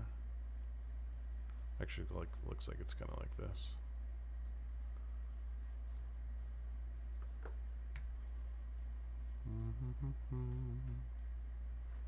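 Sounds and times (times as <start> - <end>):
steady low hum: 0.0 - 12.0
man humming: 9.4 - 11.2.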